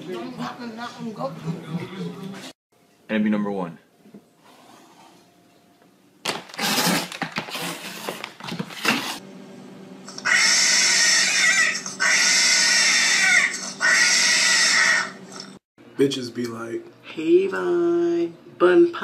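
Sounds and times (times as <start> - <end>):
harsh noisy rasping: 10.1 - 15.6
cat yowling loudly: 10.2 - 15.2.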